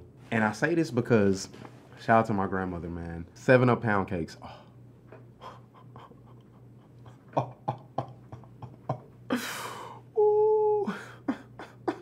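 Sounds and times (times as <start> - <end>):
man holding a high vocal note: 10.1 - 11.1.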